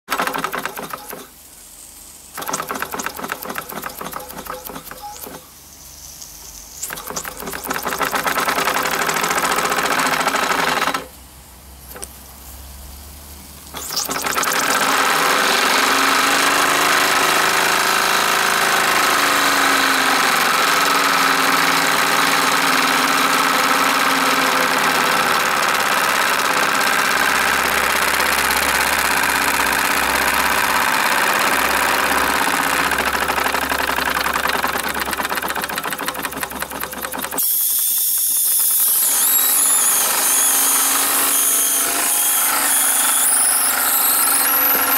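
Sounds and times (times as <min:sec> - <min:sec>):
toy steam engine clicking: 0:31.2 - 0:39.4
safety valve hissing steam: 0:37.4 - 0:39.0.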